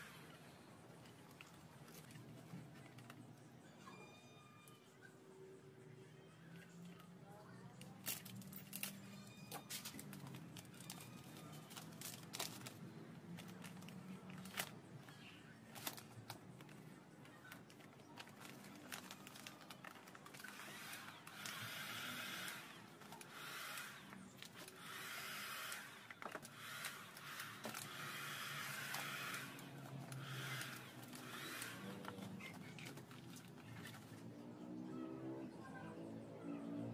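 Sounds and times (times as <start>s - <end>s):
plastic film crinkling: 7.8s - 33.9s
cordless drill running: 20.4s - 32.4s.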